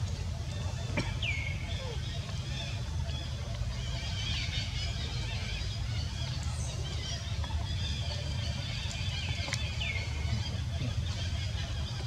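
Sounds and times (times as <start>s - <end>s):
water ticks and splashes: 0.0s - 1.2s, 2.2s - 3.8s, 5.6s - 12.0s
low outdoor rumble: 0.0s - 12.0s.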